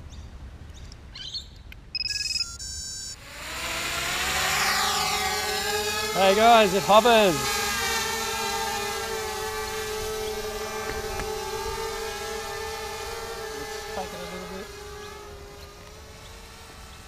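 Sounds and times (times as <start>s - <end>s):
quadcopter motors whining: 2.2s - 17.0s.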